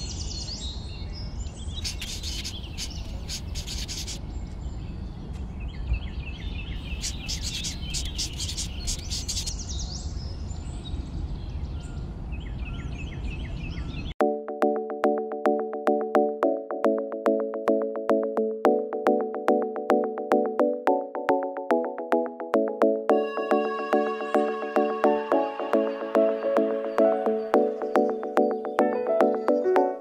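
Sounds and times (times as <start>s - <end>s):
birds chirping: 0.0s - 14.2s, 23.1s - 30.0s.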